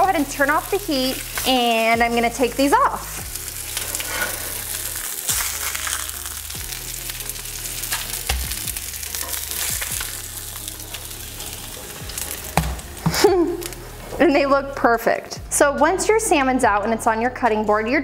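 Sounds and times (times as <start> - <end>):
fish sizzling in hot oil: 0.0 - 14.1.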